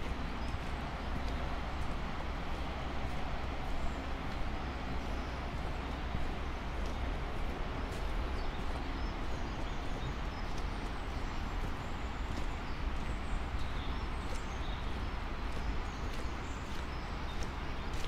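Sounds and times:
footsteps on road: 0:00.0 - 0:18.0
small birds chirping: 0:05.0 - 0:18.0.

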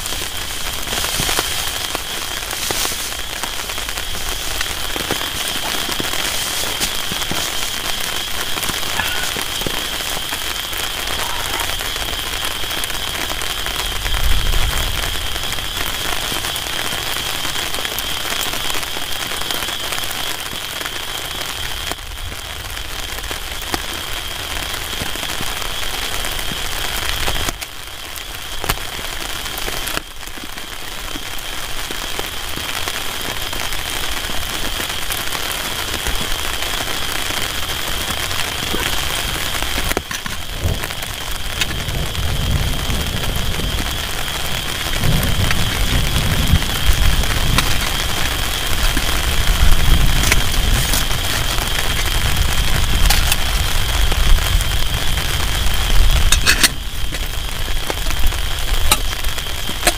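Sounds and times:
heavy rain on tarp: 0:00.0 - 0:59.9.

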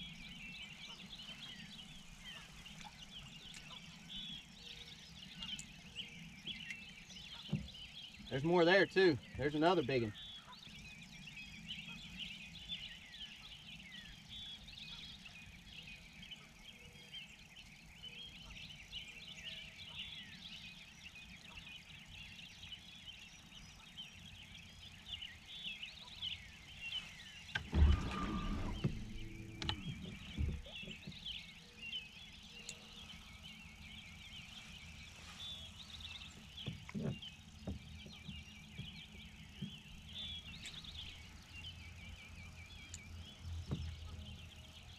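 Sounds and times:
songbirds chirping and singing: 0:00.0 - 0:44.9
low thump on boat: 0:07.3 - 0:07.8, 0:27.5 - 0:31.3, 0:36.4 - 0:39.0, 0:43.6 - 0:44.1.

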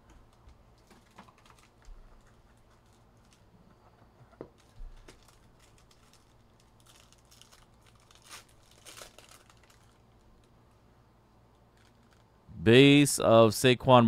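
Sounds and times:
foil wrapper crinkling and tearing: 0:00.8 - 0:03.5, 0:04.5 - 0:10.5, 0:11.7 - 0:12.3.

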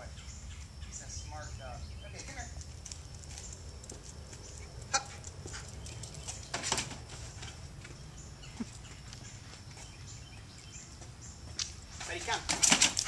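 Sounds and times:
footsteps on concrete: 0:02.2 - 0:12.4.

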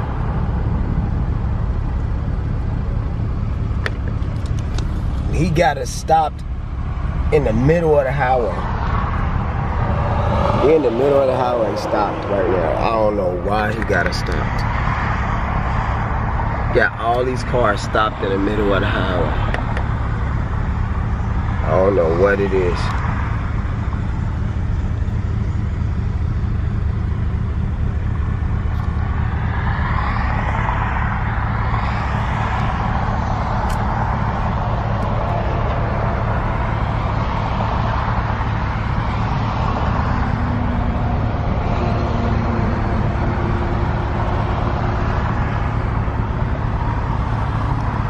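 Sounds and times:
car engine idling: 0:00.0 - 0:48.0
broad rushing noise: 0:07.4 - 0:20.0, 0:28.9 - 0:48.0.

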